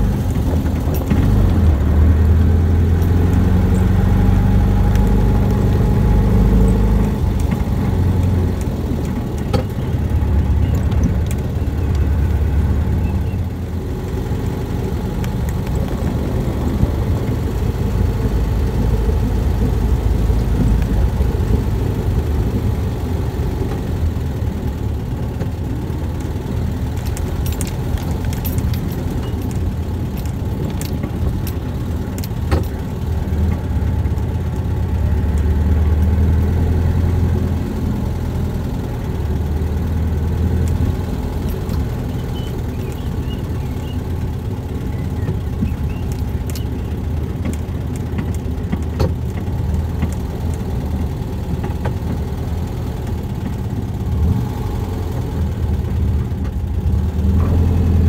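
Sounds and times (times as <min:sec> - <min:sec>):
buggy engine running: 0:00.0 - 0:58.0
sharp clicks and knocks: 0:00.2 - 0:01.9, 0:06.5 - 0:14.2, 0:25.3 - 0:35.5, 0:40.4 - 0:52.4.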